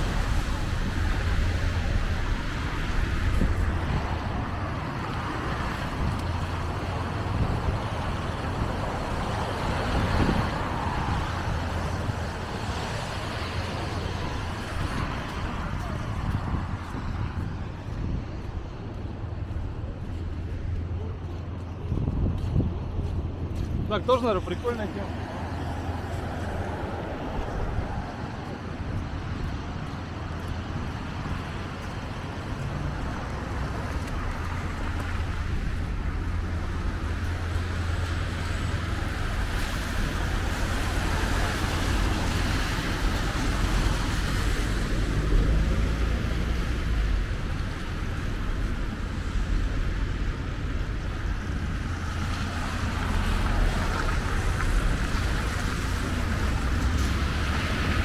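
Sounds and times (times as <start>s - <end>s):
car engines rumbling: 0.0s - 58.0s
cars passing on wet road: 0.0s - 58.0s
tyres hissing on wet asphalt: 24.1s - 58.0s.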